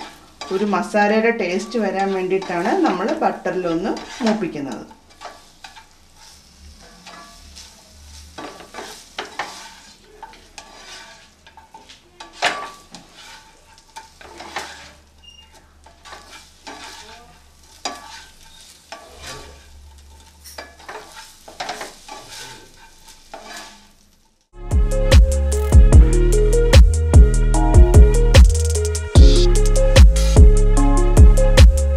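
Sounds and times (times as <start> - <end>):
spatula scraping frying pan: 0.0 - 24.3
butter sizzling: 0.0 - 24.6
music: 24.6 - 31.9.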